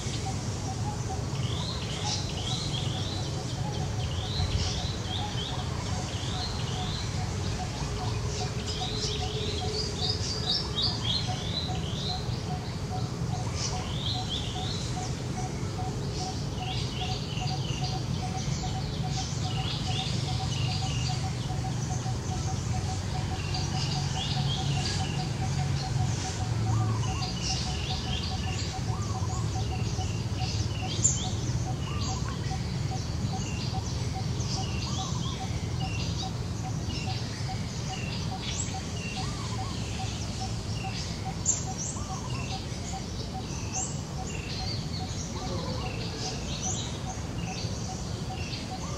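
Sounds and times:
birds chirping: 0:00.0 - 0:48.9.

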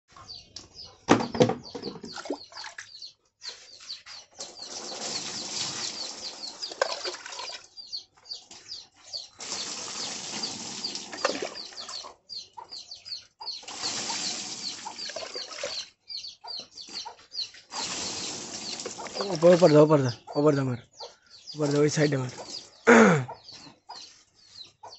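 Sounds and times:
water poured and splashing: 0:04.5 - 0:07.8, 0:09.4 - 0:12.1, 0:13.6 - 0:15.9, 0:17.7 - 0:19.9, 0:21.6 - 0:22.6.

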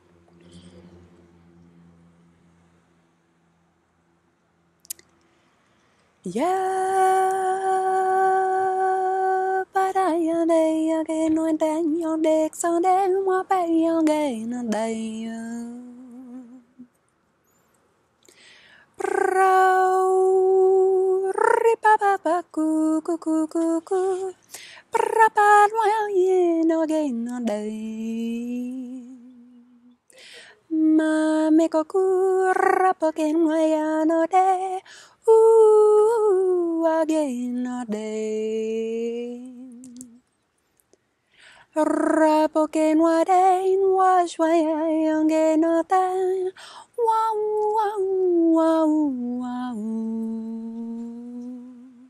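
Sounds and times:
woman wordless chanting: 0:06.2 - 0:16.9, 0:41.8 - 0:52.0.

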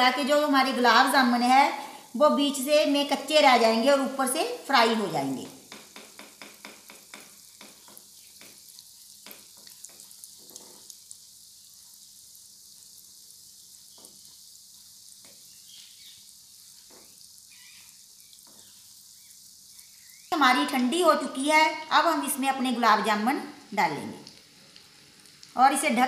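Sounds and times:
deep-frying sizzle with pops: 0:00.0 - 0:26.0.

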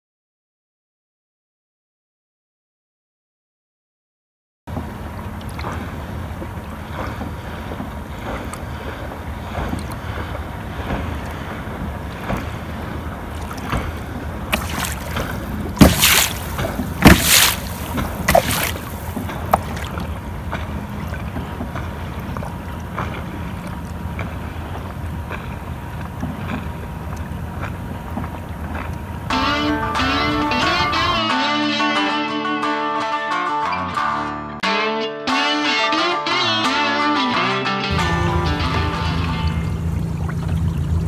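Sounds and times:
faint water sounds: 0:04.7 - 0:31.2, 0:38.0 - 0:41.0.

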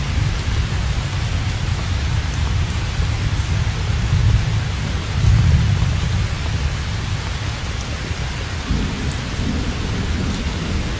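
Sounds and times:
heavy rain hissing: 0:00.0 - 0:10.9.

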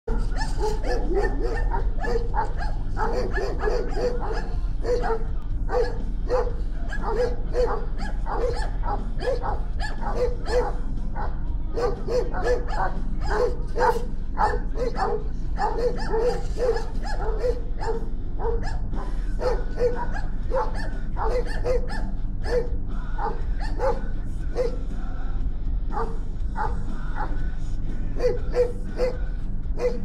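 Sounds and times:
dog barking: 0:00.1 - 0:24.9, 0:25.9 - 0:27.4, 0:28.1 - 0:30.0
steady low hum: 0:00.1 - 0:30.0.

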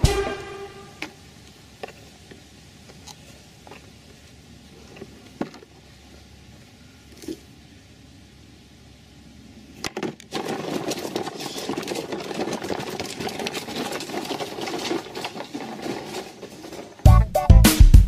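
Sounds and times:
toy truck wheels rattling on stone: 0:01.0 - 0:05.9, 0:09.8 - 0:17.1.

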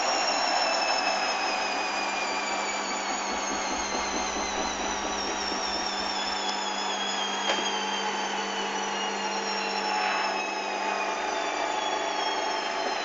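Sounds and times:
washing machine spinning: 0:01.5 - 0:09.4.

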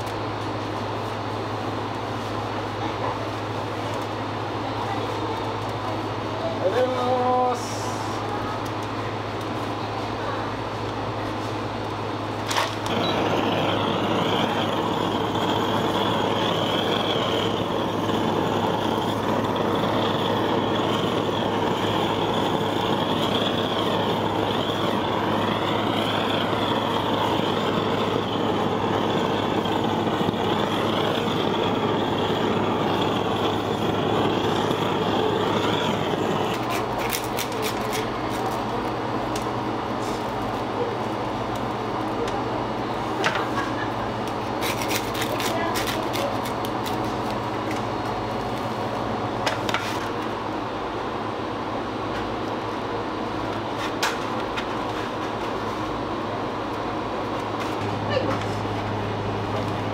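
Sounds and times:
low hum: 0:12.8 - 0:37.0
machine rushing noise: 0:12.8 - 0:37.4.

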